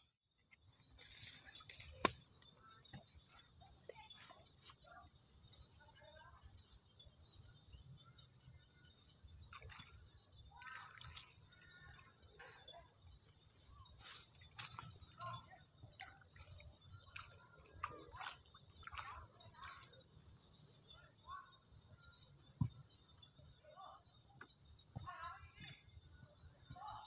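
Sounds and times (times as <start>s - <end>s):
insects trilling: 0.0s - 27.0s
rustles and clicks in grass: 0.4s - 5.0s, 13.9s - 20.0s.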